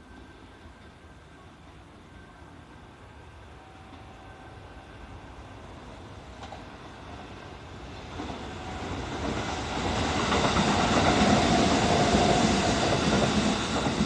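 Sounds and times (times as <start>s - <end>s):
electric train running past: 0.0s - 14.0s.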